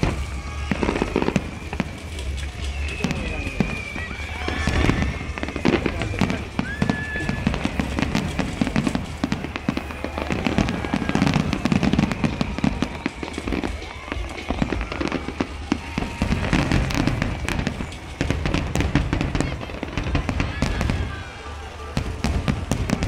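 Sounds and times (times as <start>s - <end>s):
fireworks bursting: 0.0s - 23.0s.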